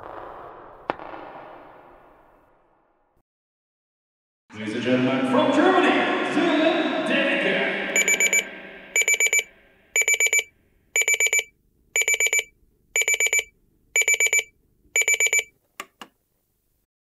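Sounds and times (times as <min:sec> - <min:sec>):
alarm clock beeping: 0:08.0 - 0:15.5.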